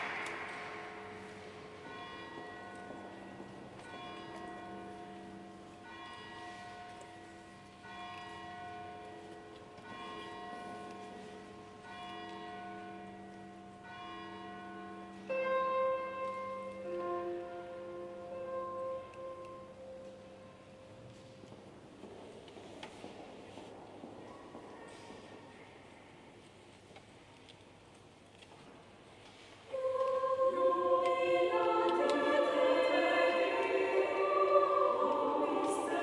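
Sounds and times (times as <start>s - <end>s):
choir singing a cappella: 29.7s - 36.0s.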